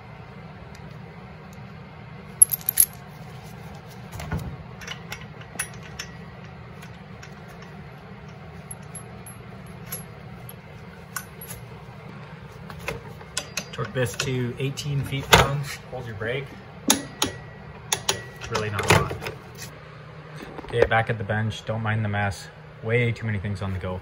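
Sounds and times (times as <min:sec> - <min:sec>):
steady low hum: 0:00.0 - 0:24.0
metal parts clinking: 0:02.4 - 0:03.1, 0:04.8 - 0:11.7.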